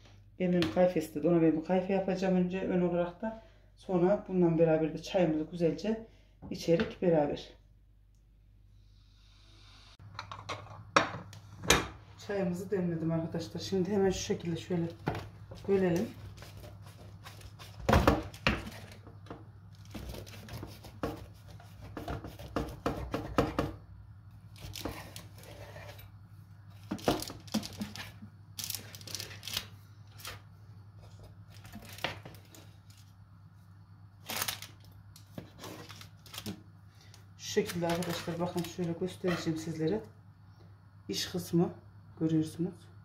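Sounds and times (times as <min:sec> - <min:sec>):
blade scraping baking paper: 0:24.6 - 0:26.1.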